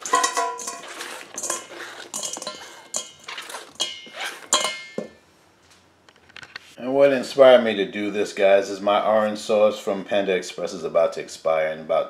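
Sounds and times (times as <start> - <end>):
clinks and clatters into metal bowl: 0.0 - 5.2.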